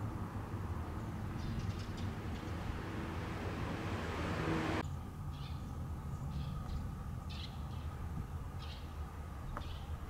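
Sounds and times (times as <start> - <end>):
small birds chirping: 0.9 - 2.8, 8.6 - 10.0.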